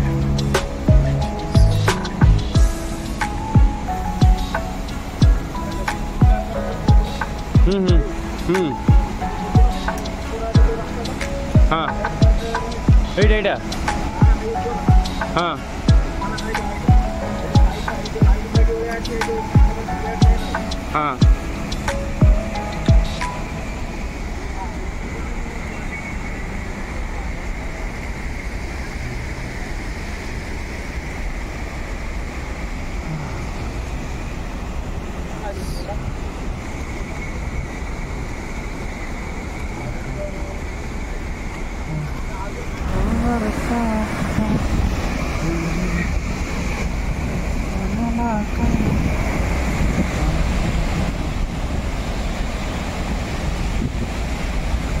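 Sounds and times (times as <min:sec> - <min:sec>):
heavy low rumble: 0:00.0 - 0:25.7, 0:39.6 - 0:55.0
water rushing over rocks: 0:00.0 - 0:55.0.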